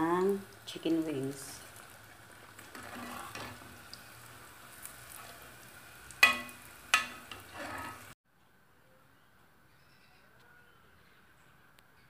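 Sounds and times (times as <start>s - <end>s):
broccoli deep-frying in oil: 0.0s - 8.2s
utensil clinking against pan: 6.2s - 8.0s.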